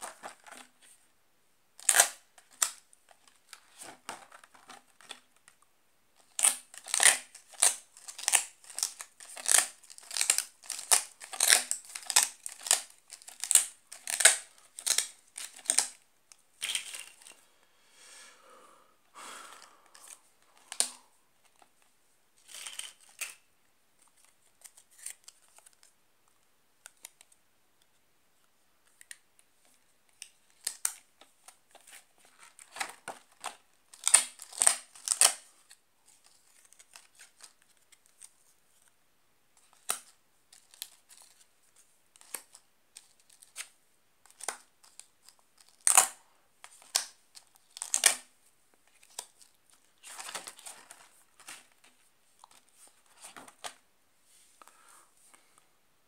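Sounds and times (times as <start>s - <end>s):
paper cards tapping and rustling: 1.9s - 5.6s, 44.3s - 53.8s.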